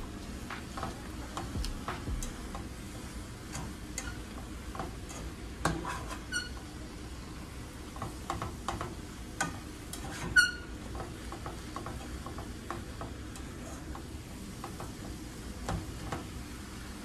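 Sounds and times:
spatula scraping and clicking: 3.5 - 6.6.

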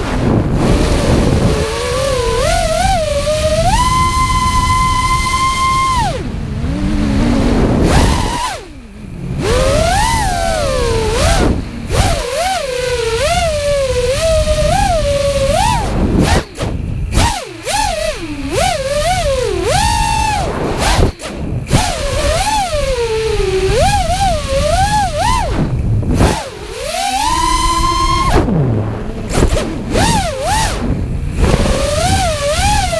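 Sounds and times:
quadcopter motors whining: 0.0 - 32.9
low rush of air: 27.7 - 32.4.

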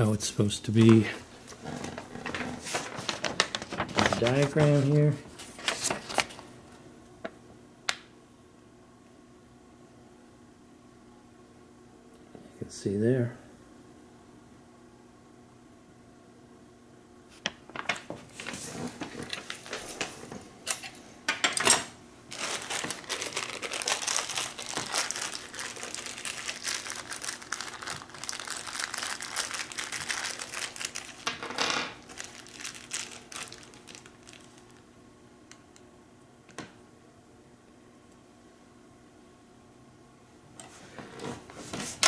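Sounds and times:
packaging crinkling: 0.8 - 6.5, 22.3 - 34.8.

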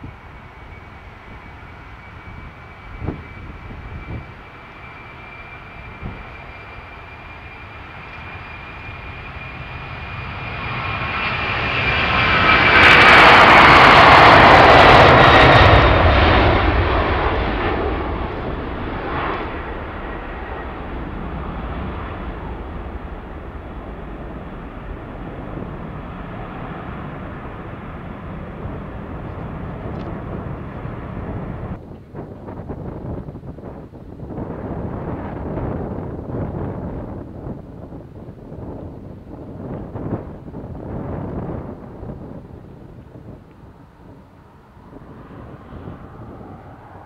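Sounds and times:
high fan whine: 0.0 - 9.6
jet engines at takeoff: 0.0 - 47.0.

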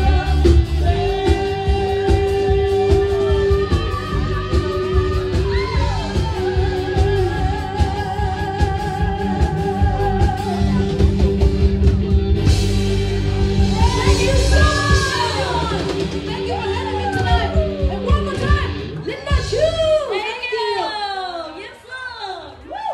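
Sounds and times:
live band with electric guitar: 0.0 - 22.9
audience whooping: 3.0 - 7.6, 13.1 - 21.6, 22.5 - 22.9.

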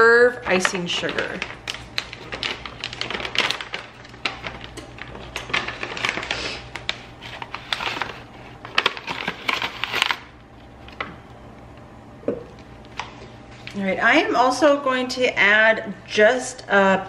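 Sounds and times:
pouch crinkling and rustling: 1.0 - 11.0.

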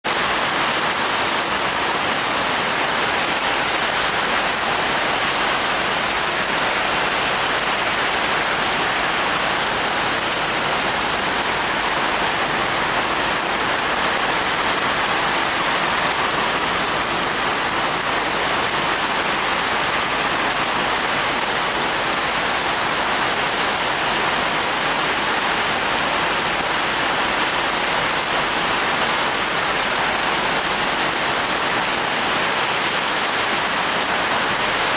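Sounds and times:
heavy rain on plants: 0.0 - 34.9.

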